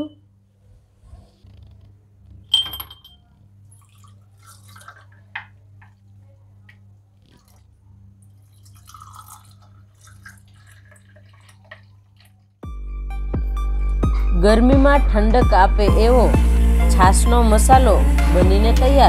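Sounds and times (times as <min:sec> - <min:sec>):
liquid splashing: 0:03.7 - 0:12.6.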